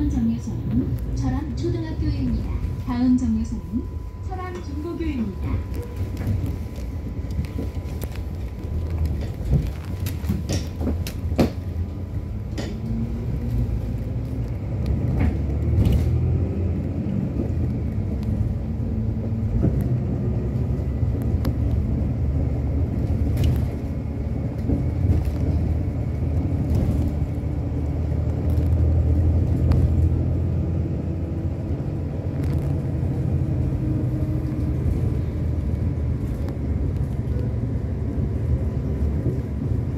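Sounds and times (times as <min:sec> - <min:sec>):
bus engine and road rumble: 0:00.0 - 0:39.9.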